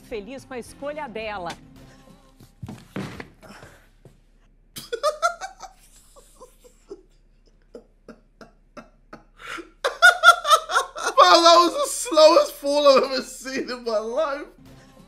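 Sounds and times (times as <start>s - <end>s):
man laughing: 4.8s - 13.9s.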